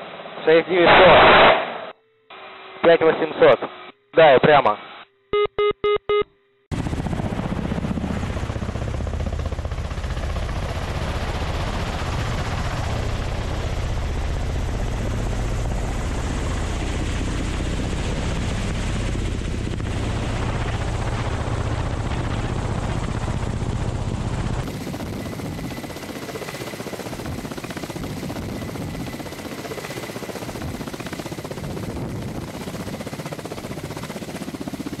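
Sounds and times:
cockpit radio bursts: 0.8 - 5.7
helicopter rotors and engines droning: 6.7 - 35.0.

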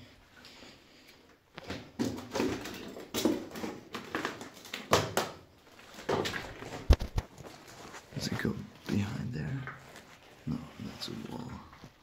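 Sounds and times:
footsteps: 5.8 - 12.0.

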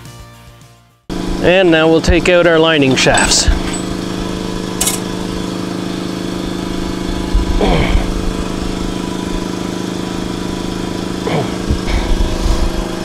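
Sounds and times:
motor droning: 1.1 - 13.0.

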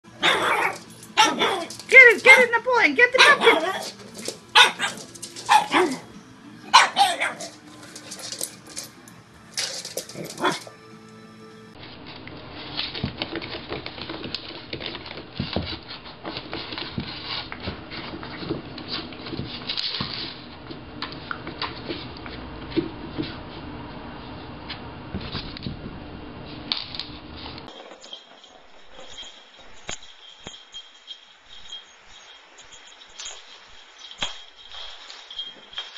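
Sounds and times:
background music: 0.1 - 11.8
dog barking: 0.2 - 1.7, 3.2 - 6.1, 6.7 - 7.6.

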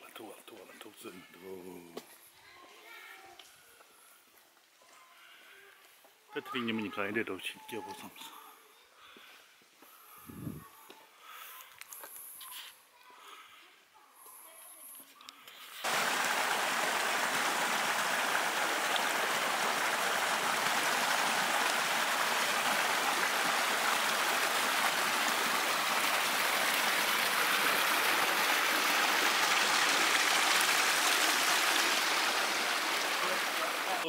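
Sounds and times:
running water rushing: 15.8 - 34.0.

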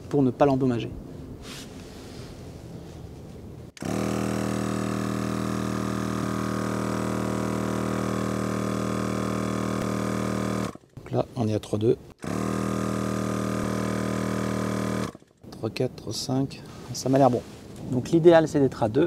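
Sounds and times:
air compressor humming: 3.8 - 10.9, 12.1 - 15.3.

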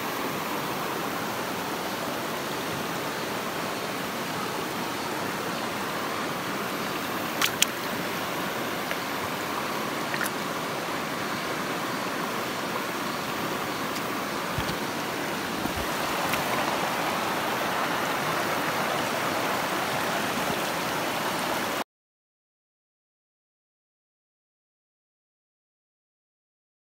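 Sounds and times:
stream flowing: 0.0 - 21.8
sharp clicks: 7.4 - 7.8.

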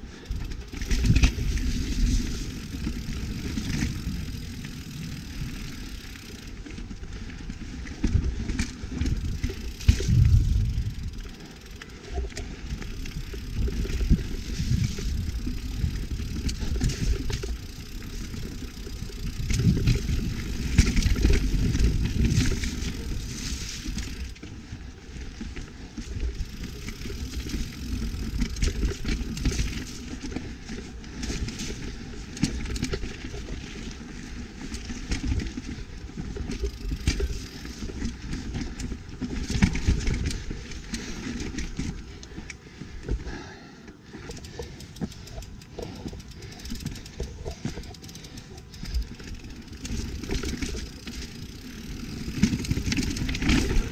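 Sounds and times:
bike rattling and knocking: 0.0 - 53.9
bike tyres rolling over dirt: 0.0 - 53.9
low rumble: 9.8 - 11.4.

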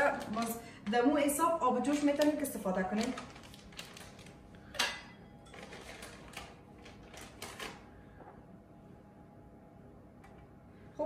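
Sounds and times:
bag crinkling and rustling: 0.0 - 0.6, 1.8 - 4.7, 5.4 - 7.8.

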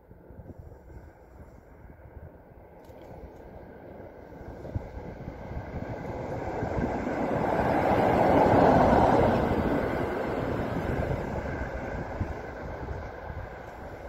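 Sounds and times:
vehicle passing by: 4.4 - 14.0.

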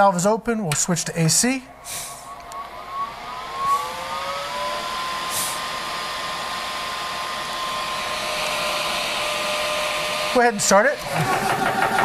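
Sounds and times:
compressor fan whine and hum: 0.0 - 12.0
brief air hiss: 1.8 - 2.4, 5.3 - 5.6.

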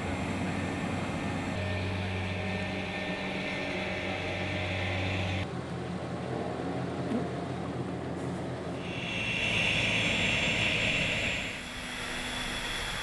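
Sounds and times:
high whine: 0.0 - 5.5, 8.8 - 13.0
aircraft machinery low hum: 0.0 - 13.0.

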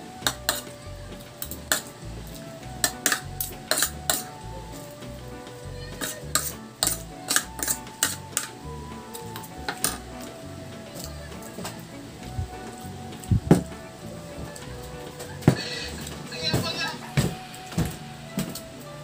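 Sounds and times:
quiet background music: 0.0 - 19.0
cutlery clinking on ceramic plate: 2.8 - 4.3, 6.0 - 8.5.

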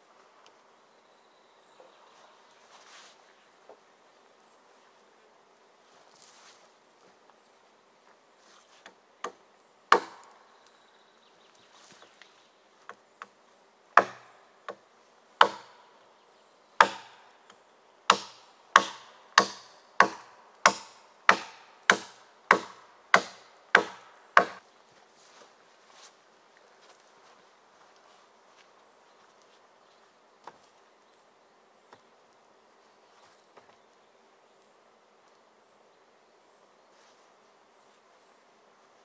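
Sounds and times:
hatchet chopping wood: 9.2 - 10.4, 14.0 - 14.8, 15.4 - 15.8, 16.8 - 17.2, 18.1 - 24.6.

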